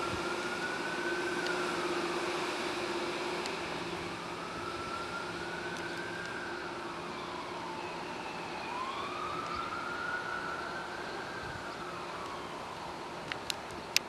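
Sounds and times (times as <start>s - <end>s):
train approaching rumbling: 0.0s - 8.9s.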